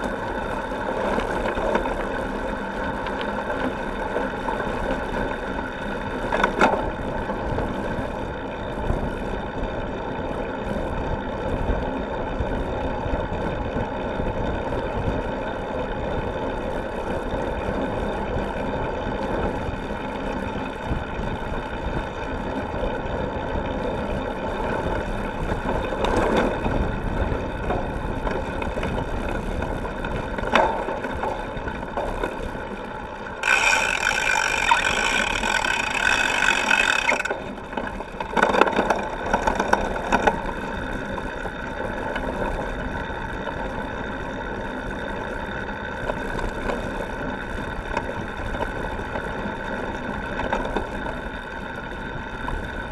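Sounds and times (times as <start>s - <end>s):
bike frame rattling: 33.4s - 40.9s.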